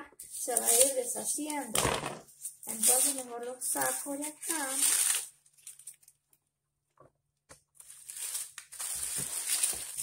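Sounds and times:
dry corn husks crinkling: 2.7s - 6.2s, 7.8s - 10.0s.

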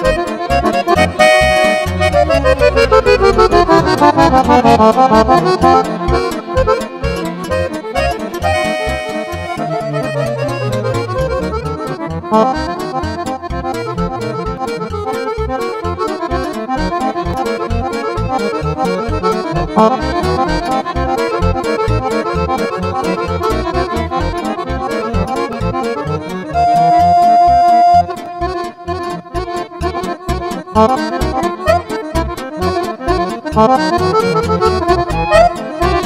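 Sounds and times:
pulsing bass beat: 0.0s - 22.6s, 33.1s - 36.0s
accordion playing fast runs: 0.0s - 36.0s.

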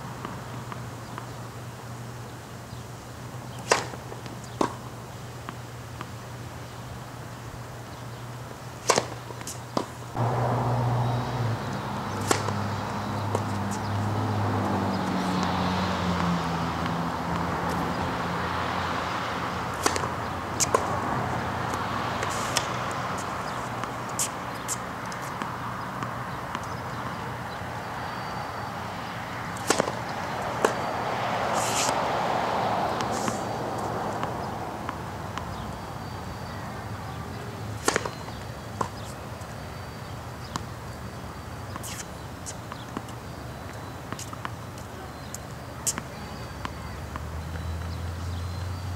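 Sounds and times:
steady outdoor hiss: 0.0s - 48.9s
tennis ball struck by racket: 3.5s - 4.9s, 8.8s - 18.0s, 18.7s - 27.2s, 29.4s - 36.5s, 37.7s - 40.7s, 41.4s - 48.0s
tennis ball bouncing on hard court: 3.5s - 6.2s, 8.8s - 28.4s, 29.4s - 48.0s
tennis ball pops: 3.6s - 4.0s, 8.8s - 9.9s, 12.1s - 12.6s, 19.7s - 20.9s, 29.6s - 30.0s, 37.8s - 39.0s.

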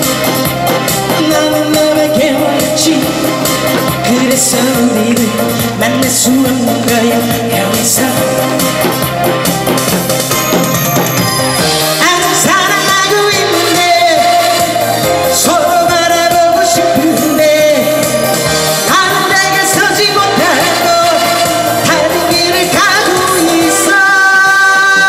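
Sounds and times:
woman singing into microphone: 0.0s - 9.5s, 11.6s - 25.0s
loud backing track: 0.0s - 25.0s.

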